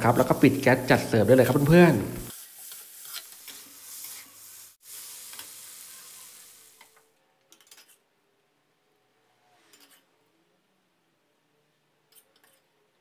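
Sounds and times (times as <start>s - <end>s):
food sizzling in a wok: 0.0s - 7.2s
metal spatula scraping wok: 0.1s - 5.5s.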